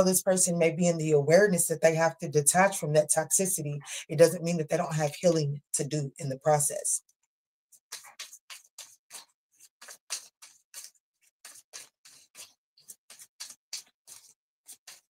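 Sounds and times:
cards being shuffled: 7.9s - 15.0s.

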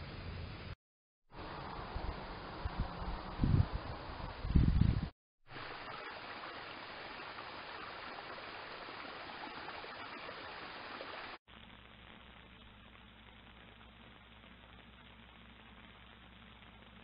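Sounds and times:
running water rushing: 5.5s - 11.4s
low steady hum: 11.1s - 17.0s.

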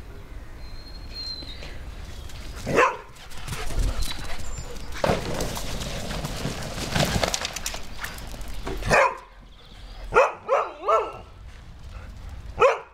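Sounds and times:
noisy rustling: 1.6s - 9.9s
dog barking: 2.7s - 3.1s, 8.9s - 9.3s, 10.1s - 11.3s, 12.6s - 12.9s.

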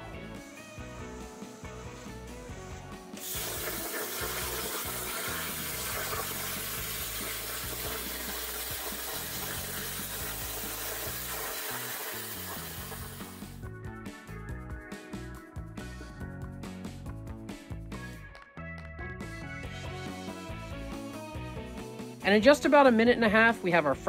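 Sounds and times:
faint background music: 0.0s - 24.0s
plasma cutter arc hissing: 3.2s - 3.5s.

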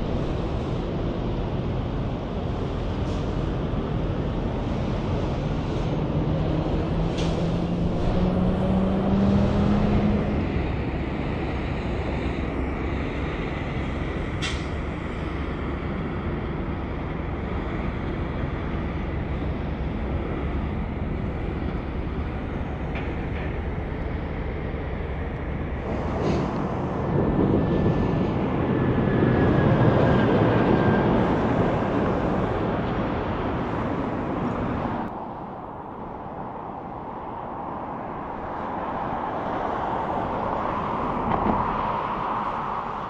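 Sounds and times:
heavy truck passing: 0.0s - 35.1s
traffic and tyre noise: 0.0s - 43.0s.

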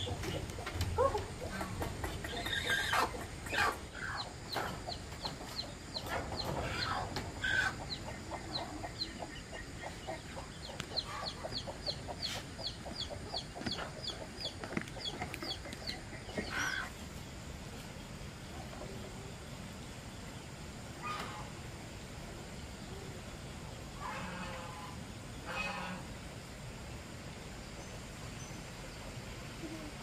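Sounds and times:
chicken clucking: 0.0s - 17.0s
chicks peeping: 0.0s - 17.0s.

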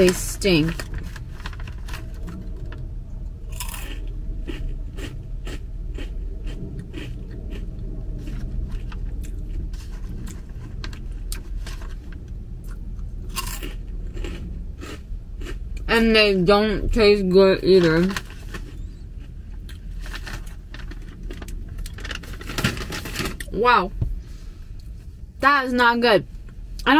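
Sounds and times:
crunchy snack chewing: 3.5s - 10.4s, 12.6s - 15.9s.

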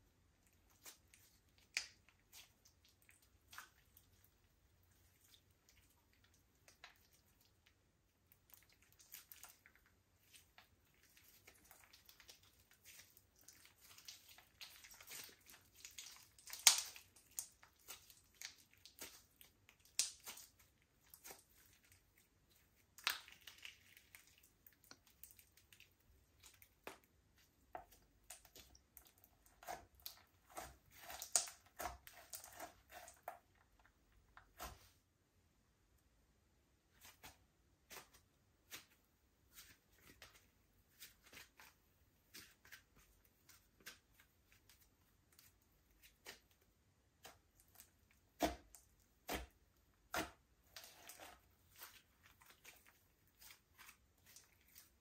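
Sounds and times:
slime squished by hand: 0.5s - 35.0s.

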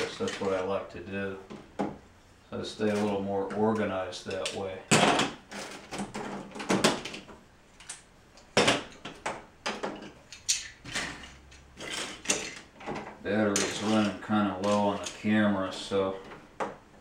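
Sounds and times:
plastic bricks clicking and clattering: 9.6s - 12.9s.

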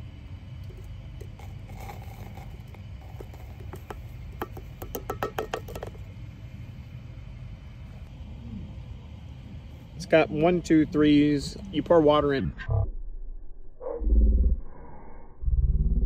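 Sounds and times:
ground coffee tipped from scoop: 0.7s - 6.0s
low rumble: 5.9s - 16.0s.

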